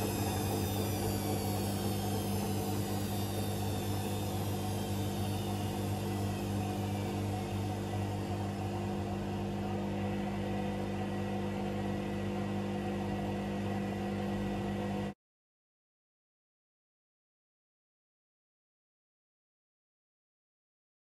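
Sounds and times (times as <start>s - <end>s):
machine humming: 0.0s - 15.1s.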